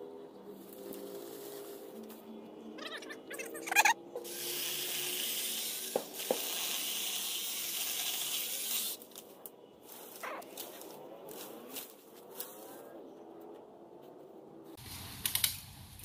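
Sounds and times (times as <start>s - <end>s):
electric pole saw hissing: 4.2s - 9.1s.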